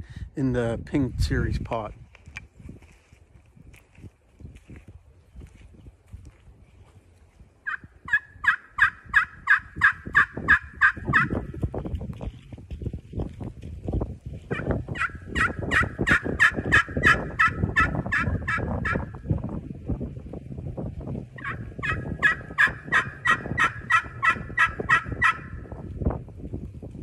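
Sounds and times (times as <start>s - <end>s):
turkey pot call yelps: 7.6s - 11.4s, 14.5s - 19.1s, 21.4s - 25.6s.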